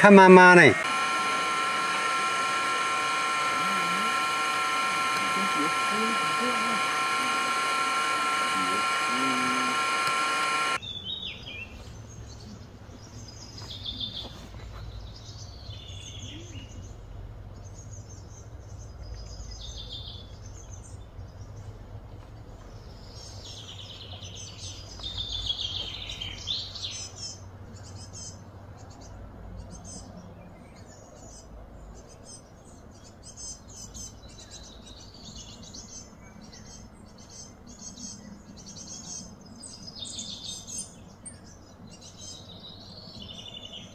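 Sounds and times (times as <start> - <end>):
mechanical whine: 0.0 - 10.8
birds chirping: 0.0 - 43.9.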